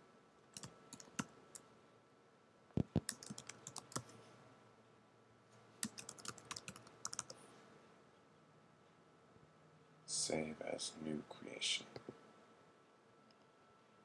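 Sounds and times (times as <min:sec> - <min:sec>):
typing on computer keyboard: 0:00.6 - 0:01.3, 0:02.8 - 0:04.1, 0:05.8 - 0:07.4.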